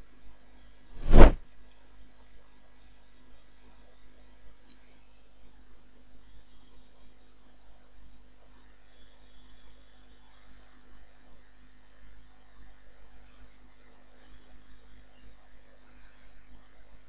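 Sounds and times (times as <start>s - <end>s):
thin high whine: 1.0s - 1.4s
computer mouse clicking: 8.6s - 8.8s, 9.5s - 9.8s, 10.6s - 10.9s, 11.8s - 12.2s, 13.2s - 13.5s, 14.2s - 14.5s, 16.5s - 16.8s.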